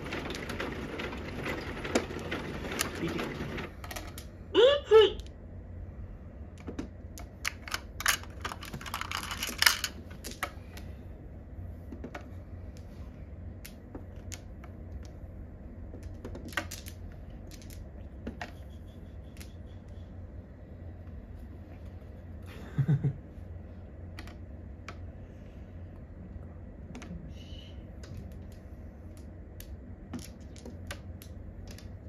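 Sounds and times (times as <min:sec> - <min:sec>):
mahjong tiles clicking: 0:00.0 - 0:04.3, 0:06.5 - 0:10.8, 0:11.9 - 0:20.2, 0:28.0 - 0:32.0
low steady hum: 0:00.0 - 0:32.0.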